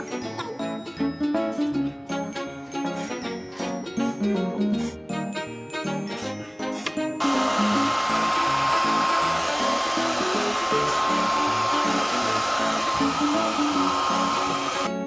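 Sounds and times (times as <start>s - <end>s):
plucked background music: 0.0s - 15.0s
hair dryer running: 7.2s - 15.0s.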